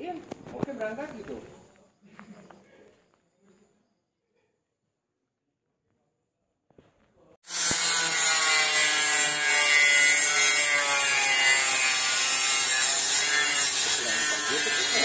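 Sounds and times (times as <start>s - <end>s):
angle grinder cutting steel: 7.4s - 15.0s.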